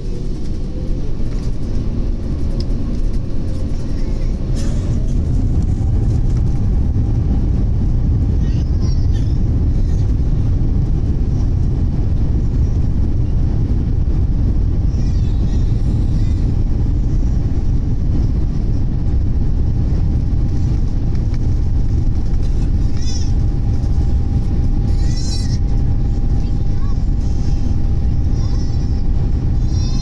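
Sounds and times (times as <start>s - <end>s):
airplane cabin rumble at takeoff: 0.0s - 30.0s.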